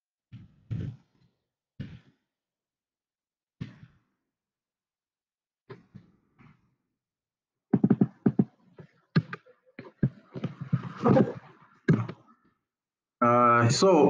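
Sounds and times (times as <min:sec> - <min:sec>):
person muttering: 0:10.9 - 0:12.2.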